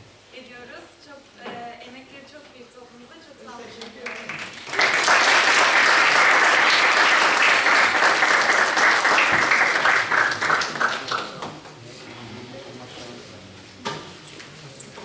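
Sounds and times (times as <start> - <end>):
audience applauding: 4.0 - 11.7.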